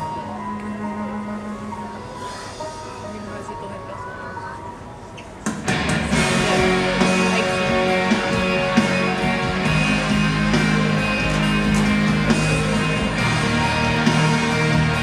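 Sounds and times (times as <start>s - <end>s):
loud show music: 5.4s - 15.0s
musical hits: 5.4s - 15.0s.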